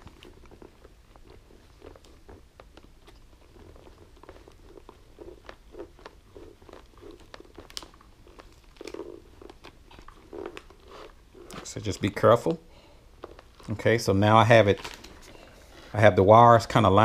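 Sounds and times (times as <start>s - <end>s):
soft fabric rubbing: 0.0s - 12.5s.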